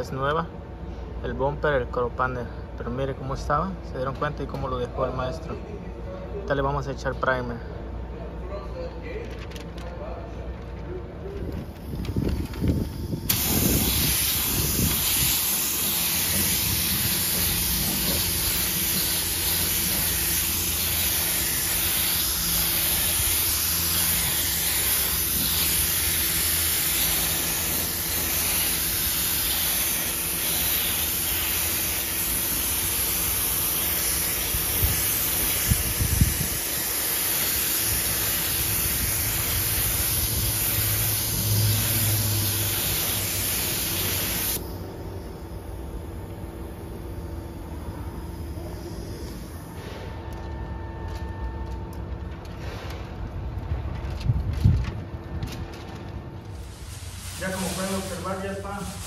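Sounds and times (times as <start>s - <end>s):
spray gun hissing: 11.8s - 44.8s, 45.4s - 50.0s, 56.5s - 59.0s.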